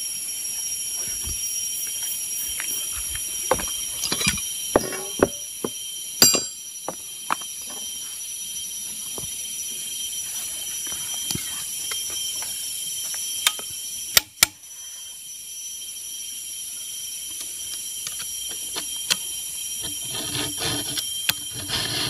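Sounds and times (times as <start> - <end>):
forest insects droning: 0.0 - 22.0
hand tools clicking and knocking: 3.5 - 7.0.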